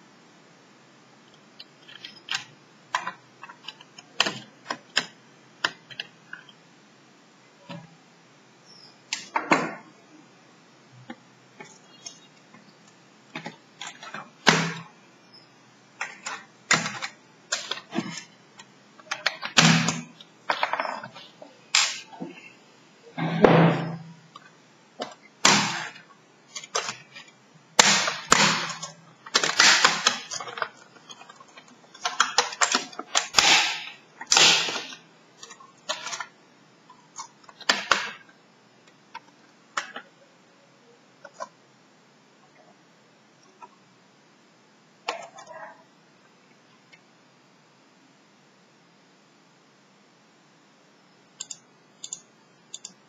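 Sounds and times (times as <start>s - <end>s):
plastic clicks and knocks of laptop: 1.6s - 6.6s.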